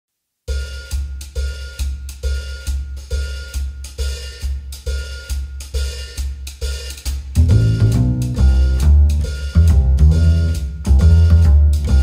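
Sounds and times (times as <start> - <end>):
drum kit beat: 0.5 - 12.0.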